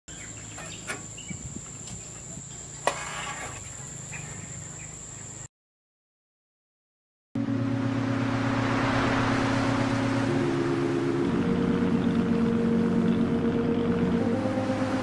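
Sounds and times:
insects whining: 0.1 - 5.5, 7.6 - 15.0
low hum: 7.4 - 15.0.

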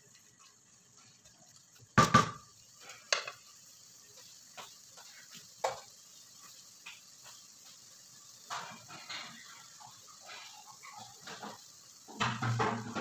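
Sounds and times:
meat sizzling in a pot: 0.0 - 13.0
wooden spoon knocking metal pot: 2.0 - 2.4.

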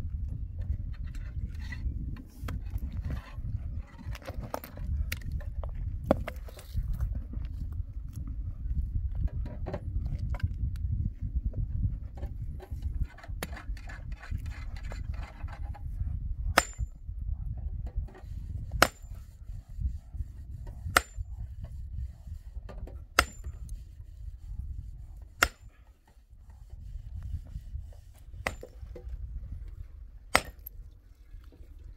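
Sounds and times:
sledgehammer striking rock: 16.5 - 17.0, 18.8 - 19.2, 20.9 - 21.2, 23.2 - 23.6, 25.4 - 25.7, 28.4 - 28.9, 30.3 - 30.7.

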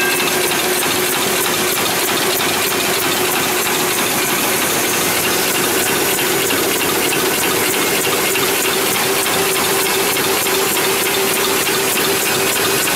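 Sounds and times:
machine constant hum: 0.0 - 12.9
machine fast mechanical clatter: 0.0 - 12.9.

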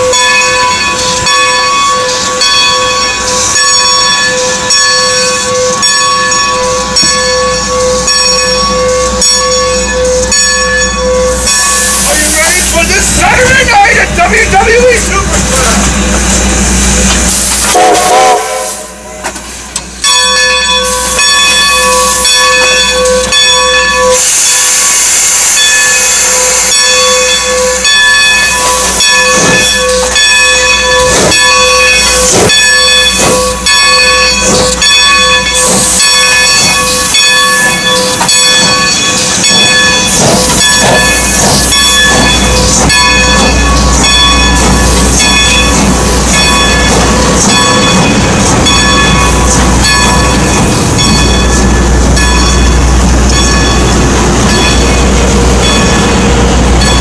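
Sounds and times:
steam locomotive exhaust strokes: 0.0 - 19.9, 20.7 - 57.0
steam hissing: 11.3 - 19.8, 20.8 - 23.0, 24.1 - 56.8
steam whistle chord: 17.4 - 19.4.

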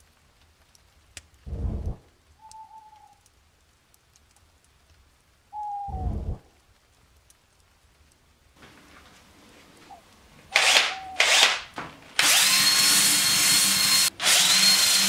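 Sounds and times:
faint hiss: 0.0 - 11.2
deep booms: 1.5 - 2.1, 5.9 - 6.5.

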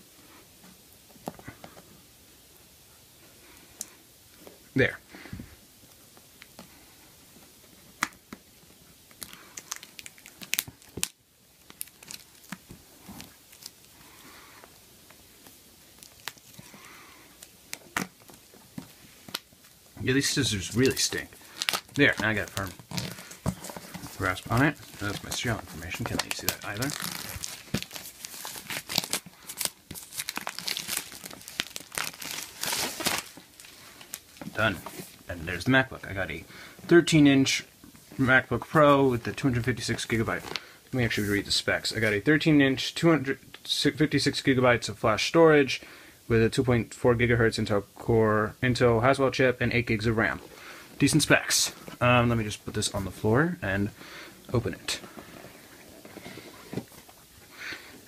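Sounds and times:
packaging crinkling and tearing: 9.1 - 14.1, 15.4 - 35.2, 40.0 - 40.6.

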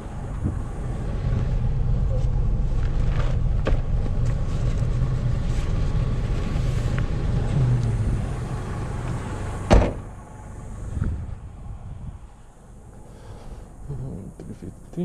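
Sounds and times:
traffic rumble: 0.0 - 15.0
car door shutting: 9.0 - 10.1.

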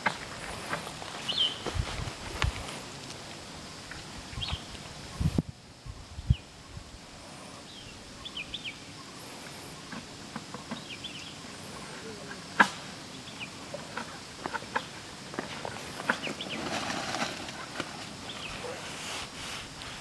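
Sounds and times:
small birds chirping: 0.0 - 2.9, 3.8 - 16.9, 17.6 - 20.0
sharp crack: 12.6 - 12.9.

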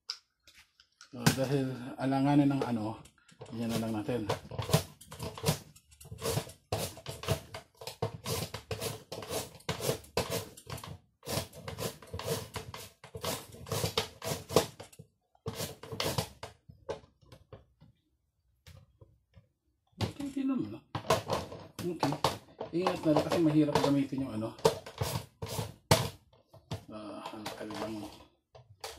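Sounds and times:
carrot shredded on mandoline: 3.6 - 14.8, 15.5 - 16.4, 22.7 - 25.9.

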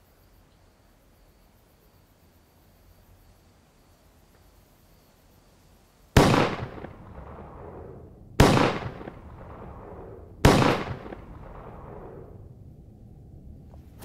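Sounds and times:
explosive bangs with echo: 6.2 - 12.5.

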